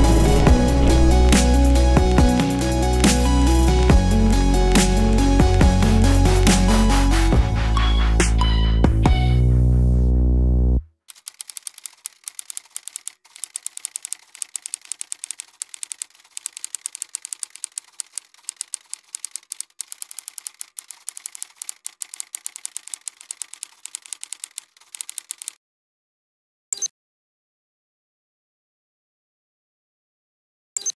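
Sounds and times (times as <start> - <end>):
music track: 0.0 - 10.2
typewriter keystroke clacks: 11.1 - 25.6.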